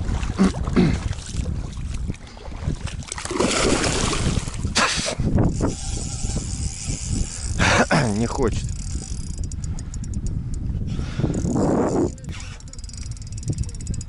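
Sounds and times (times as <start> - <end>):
splashing river water: 0.0 - 5.3
wind rumbling on microphone: 0.0 - 14.0
sharp water splash: 2.6 - 5.2.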